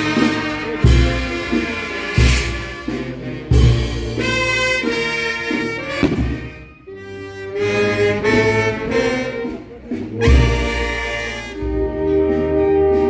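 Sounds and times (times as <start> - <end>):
band melody in long notes: 0.0 - 13.0
deep drum beats: 5.9 - 6.9.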